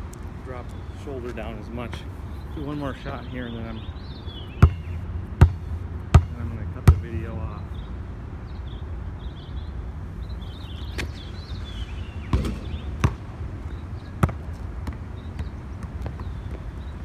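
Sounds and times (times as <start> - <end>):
low outdoor rumble: 0.0 - 16.8
basketball knocking on court: 4.6 - 7.2, 12.3 - 13.2.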